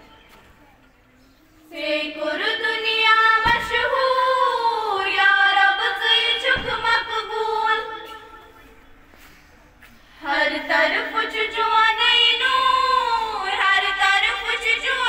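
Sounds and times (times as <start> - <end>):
children singing unaccompanied: 1.6 - 8.3, 10.2 - 15.0.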